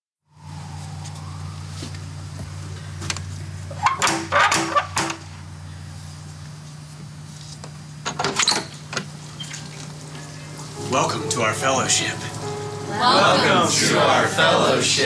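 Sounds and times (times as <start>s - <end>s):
steady low hum: 0.4s - 8.1s.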